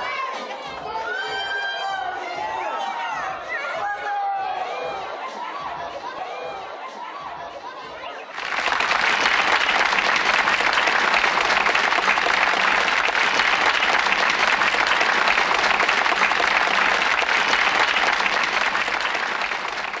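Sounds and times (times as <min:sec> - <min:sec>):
crowd applauding: 0:08.3 - 0:20.0.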